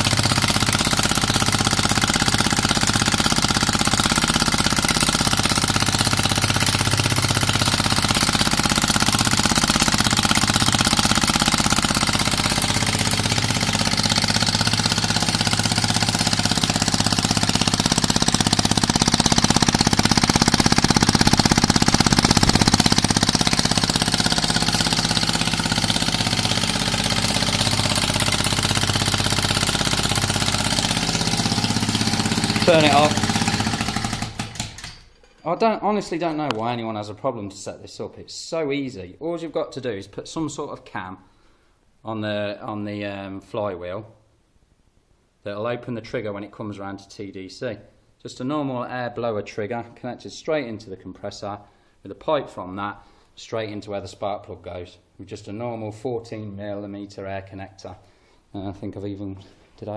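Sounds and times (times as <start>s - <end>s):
air-driven engine chattering: 0.0s - 35.1s.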